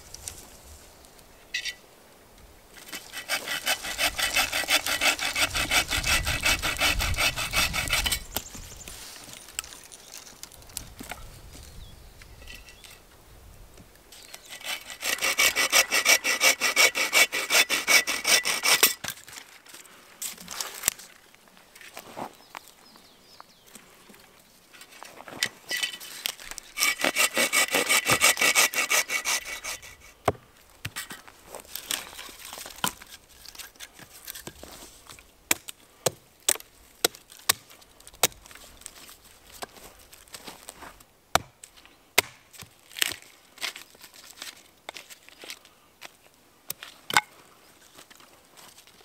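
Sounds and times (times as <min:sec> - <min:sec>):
hand saw rasping through branch: 0:02.8 - 0:08.4, 0:14.4 - 0:19.1, 0:26.6 - 0:30.2
hatchet striking wood: 0:41.3 - 0:41.6, 0:42.2 - 0:43.2.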